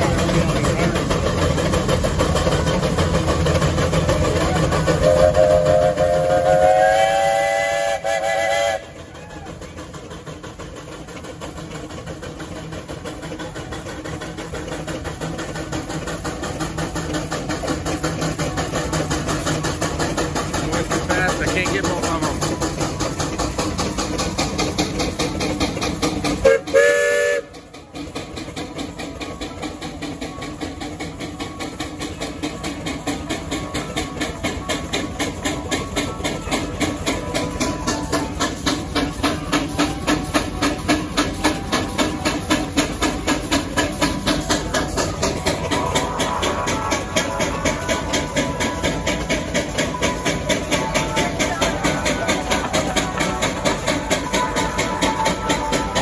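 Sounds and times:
steam engine exhaust rumble: 0:00.0 - 0:56.0
multi-note steam whistle: 0:04.9 - 0:09.7, 0:26.4 - 0:27.7, 0:45.4 - 0:56.0
steam whistle blowing: 0:05.0 - 0:09.5, 0:26.4 - 0:27.6.

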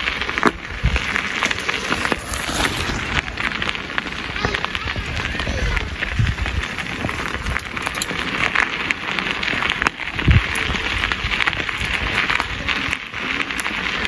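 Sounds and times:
footsteps crunching on gravel: 0:00.0 - 0:04.6.

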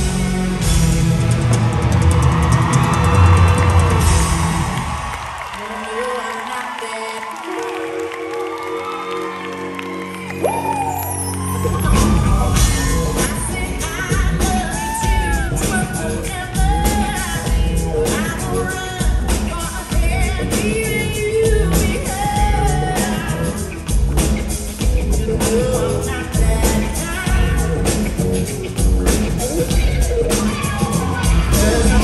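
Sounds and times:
pop-rock band playing: 0:00.0 - 0:05.5, 0:07.6 - 0:32.0
woman singing: 0:11.7 - 0:23.7, 0:25.0 - 0:28.1, 0:29.5 - 0:32.0
drum beat: 0:11.8 - 0:32.0.

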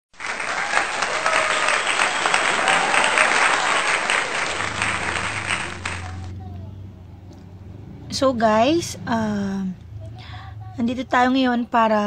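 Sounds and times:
crowd applause: 0:00.1 - 0:06.3.

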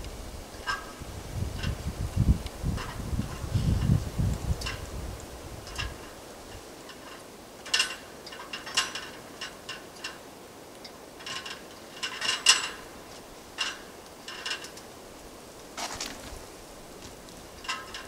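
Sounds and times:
hand work clicks and scrapes: 0:10.8 - 0:14.9, 0:17.6 - 0:18.0.

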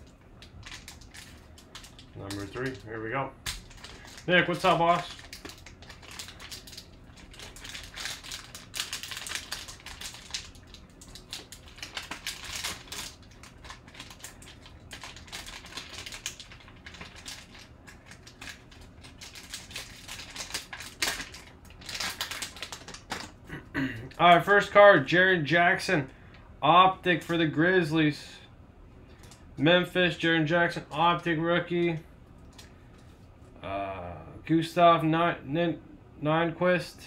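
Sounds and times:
foil wrapper crinkling: 0:00.4 - 0:23.4.

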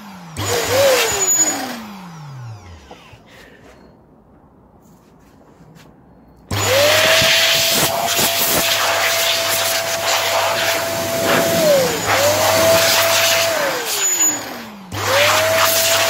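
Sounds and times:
electric air duster motor whine: 0:00.0 - 0:03.4, 0:06.5 - 0:16.0
rush of blown air: 0:10.1 - 0:13.9.

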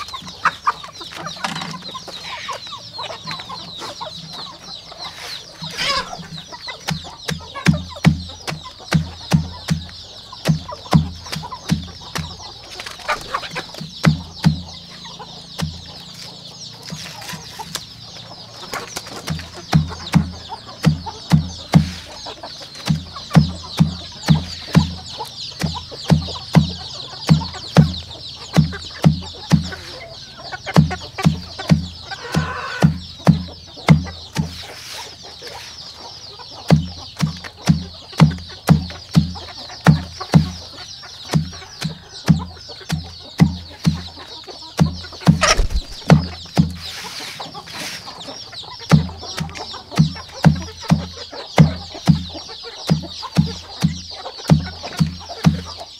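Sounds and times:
chicks peeping: 0:00.0 - 0:55.9
background music with low beat: 0:06.1 - 0:12.6, 0:13.6 - 0:16.7, 0:19.2 - 0:34.6, 0:36.6 - 0:46.9, 0:48.7 - 0:55.9.

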